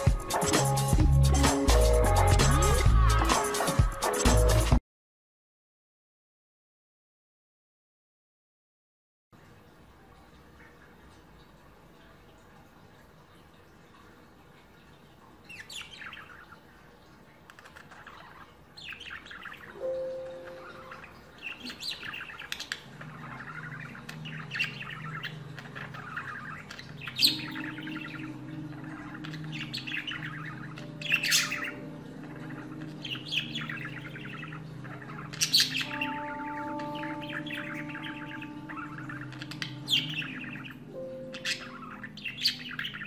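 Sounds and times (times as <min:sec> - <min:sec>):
budgerigars chirping and warbling: 0:15.4 - 0:16.8, 0:17.5 - 0:43.0.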